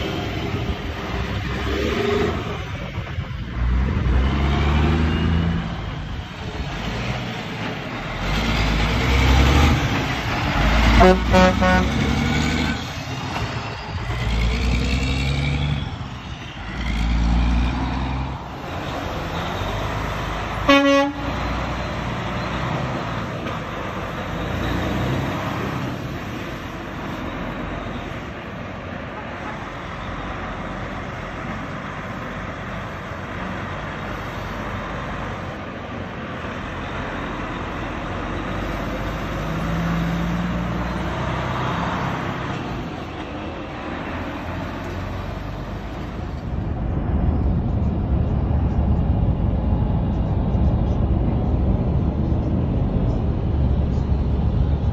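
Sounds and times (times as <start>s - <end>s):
diesel trucks pulling away: 0.0s - 54.9s
truck horn: 10.8s - 12.4s, 20.5s - 21.8s.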